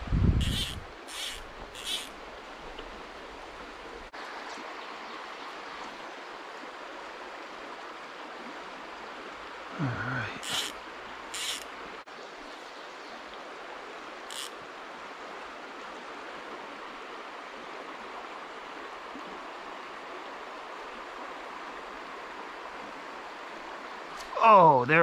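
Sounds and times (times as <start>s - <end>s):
stream water running over stones: 0.3s - 25.0s
short high hiss: 10.4s - 11.7s.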